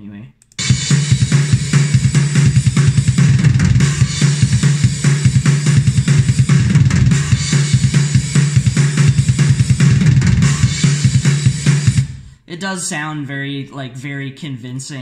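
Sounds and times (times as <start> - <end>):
kick drum hits: 0.6 - 12.2
snare drum: 0.6 - 12.2.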